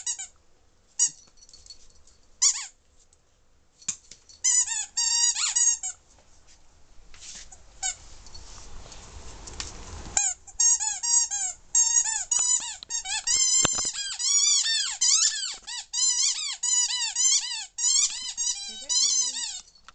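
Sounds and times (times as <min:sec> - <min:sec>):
squeaky toy squeaking: 0:02.4 - 0:02.8, 0:04.4 - 0:06.0, 0:10.2 - 0:19.8.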